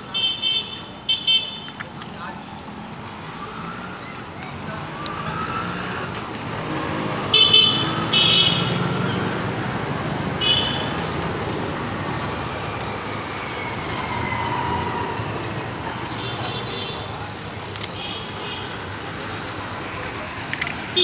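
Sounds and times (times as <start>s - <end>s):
vehicle horns honking: 0.0s - 1.8s, 7.2s - 9.3s, 10.4s - 11.1s, 16.1s - 17.1s
street traffic: 0.0s - 21.0s.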